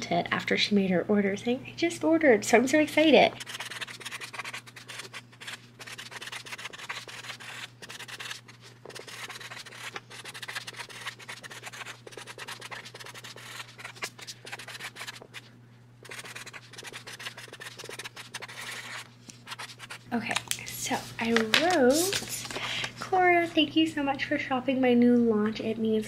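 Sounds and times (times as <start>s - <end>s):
marker scratching on card: 3.3s - 20.1s.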